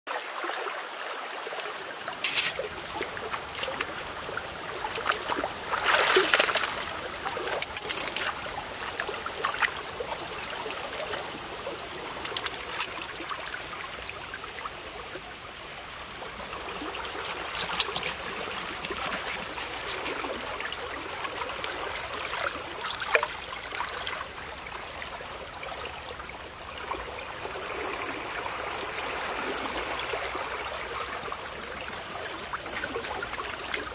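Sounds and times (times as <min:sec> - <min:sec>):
stream running over rocks: 0:00.1 - 0:33.9
water splashing: 0:01.4 - 0:25.8.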